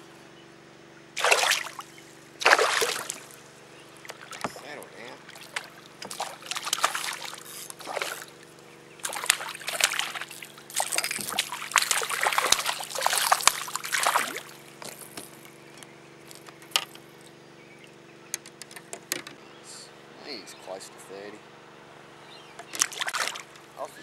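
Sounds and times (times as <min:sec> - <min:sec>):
faint steady hum: 0:00.0 - 0:24.0
fish splashing and thrashing: 0:01.2 - 0:15.5, 0:22.6 - 0:23.7.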